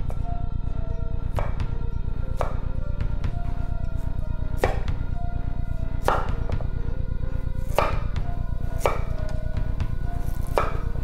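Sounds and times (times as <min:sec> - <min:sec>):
music: 0:00.0 - 0:11.0
knife chopping on wooden board: 0:02.4 - 0:02.7, 0:04.6 - 0:05.0, 0:06.0 - 0:06.6, 0:07.7 - 0:08.0, 0:08.8 - 0:09.4, 0:10.2 - 0:11.0.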